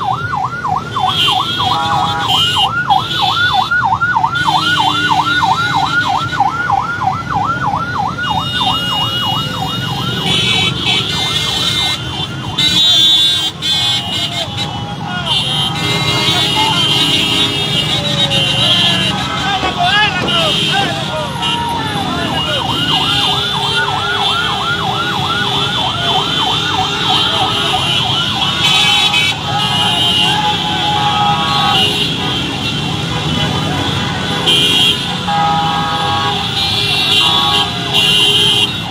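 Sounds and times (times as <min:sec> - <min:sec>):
vehicle siren yelping: 0:00.0 - 0:32.3
motorbike and car traffic rumble: 0:00.0 - 0:38.9.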